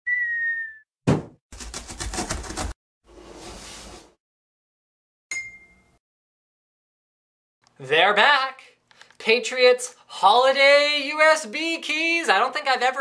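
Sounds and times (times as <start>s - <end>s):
cardboard box landing thump: 1.1s - 2.7s.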